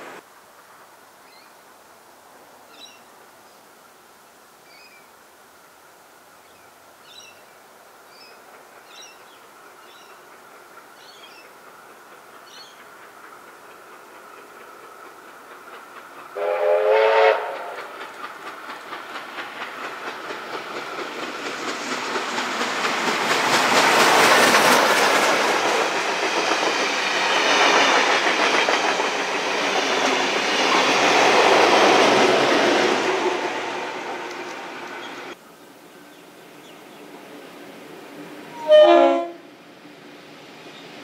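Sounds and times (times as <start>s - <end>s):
steam locomotive exhaust beats: 8.1s - 35.4s
steam locomotive whistle: 16.4s - 18.0s, 38.5s - 39.5s.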